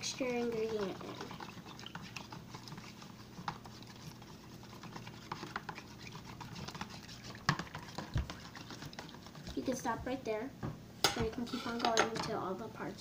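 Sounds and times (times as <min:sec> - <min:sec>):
knife scraping plastic tub: 0:00.0 - 0:09.8.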